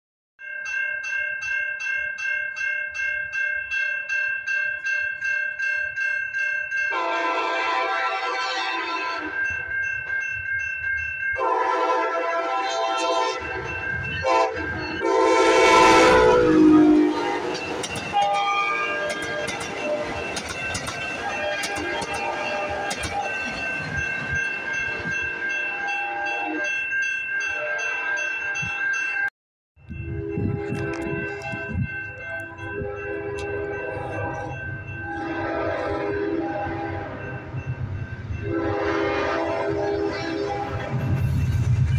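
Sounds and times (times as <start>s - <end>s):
crossing bell ringing: 0.4s - 41.9s
train horn blowing: 6.9s - 9.4s, 11.4s - 17.6s, 32.4s - 37.4s, 38.4s - 41.0s
train wheels clattering on rails: 17.2s - 25.2s.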